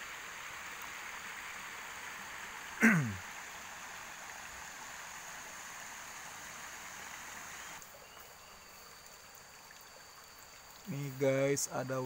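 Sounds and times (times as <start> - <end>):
waterfall stream rushing: 0.0 - 7.8
faint high whine: 4.7 - 7.8.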